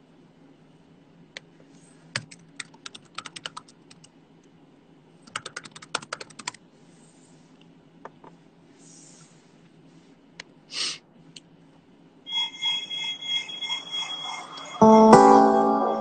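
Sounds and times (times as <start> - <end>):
computer keyboard typing: 2.2 - 4.1, 5.2 - 6.6.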